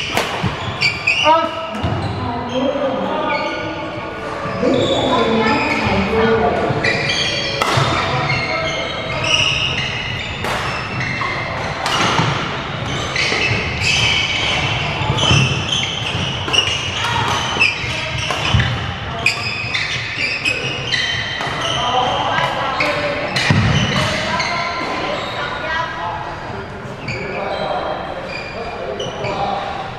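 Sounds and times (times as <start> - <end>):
rackets striking shuttlecock: 0.0 - 1.0, 7.4 - 8.4, 10.4 - 10.9
sneakers squeaking on wooden floor: 0.0 - 25.9, 27.0 - 29.9
voices in a hall: 0.0 - 29.9.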